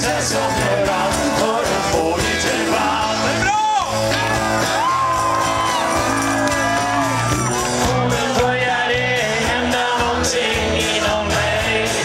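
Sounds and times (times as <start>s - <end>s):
man singing: 0.0s - 4.1s, 7.4s - 12.0s
live rock band: 0.0s - 12.0s.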